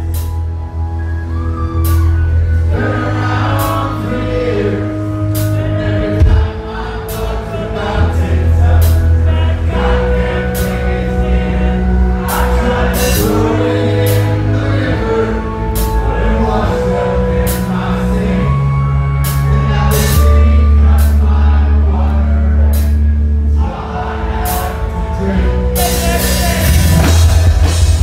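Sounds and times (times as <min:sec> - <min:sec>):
electric bass low notes: 0:00.0 - 0:28.0
man singing: 0:02.7 - 0:28.0
drums with cymbal crashes: 0:25.8 - 0:28.0.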